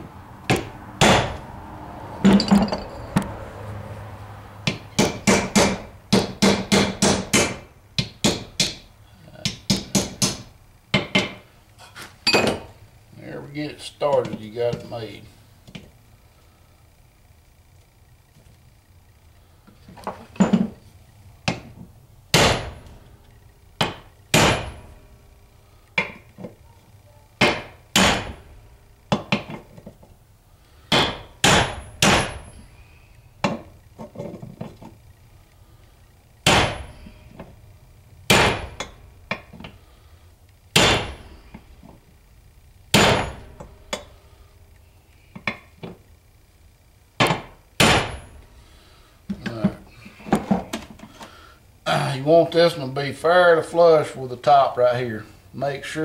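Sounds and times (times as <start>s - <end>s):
hammer striking steel driver: 40.8s - 41.2s.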